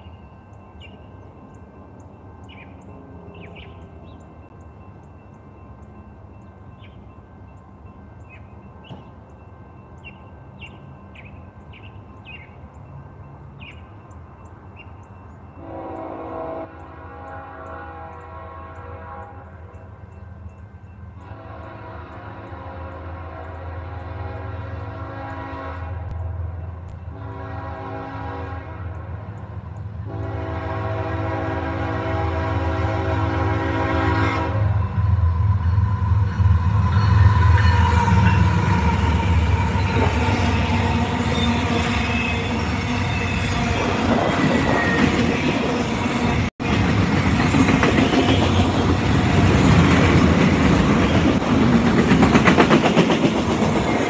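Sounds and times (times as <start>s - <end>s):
train air horn blasts: 15.6s - 20.0s, 21.2s - 26.2s, 27.0s - 29.4s, 30.0s - 45.3s
train wheels clacking on rails: 35.0s - 54.0s.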